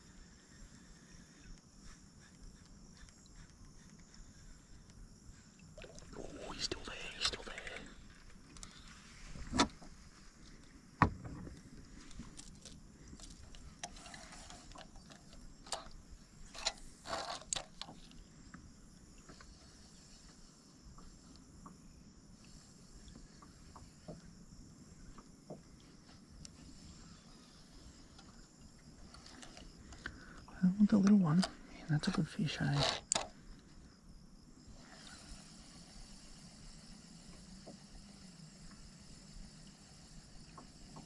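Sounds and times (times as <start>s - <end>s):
faint ticks: 0.0s - 6.0s, 7.1s - 9.0s, 11.4s - 32.2s, 34.8s - 41.0s
sharp knocks on a kayak: 11.0s - 11.5s.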